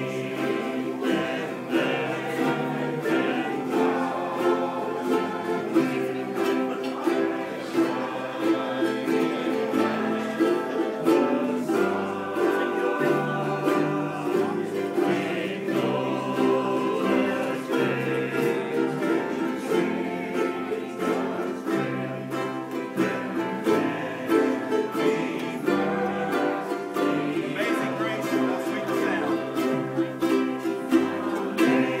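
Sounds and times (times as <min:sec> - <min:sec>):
ukuleles strumming: 0:00.0 - 0:32.0.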